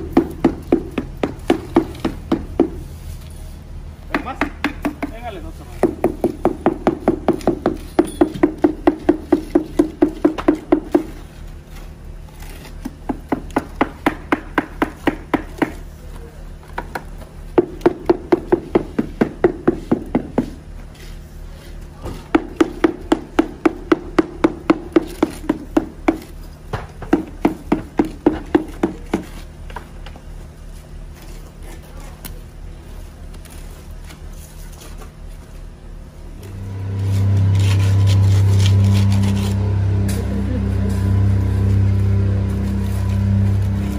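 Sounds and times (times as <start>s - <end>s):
tool knocking on wooden mould: 4.1s - 5.2s.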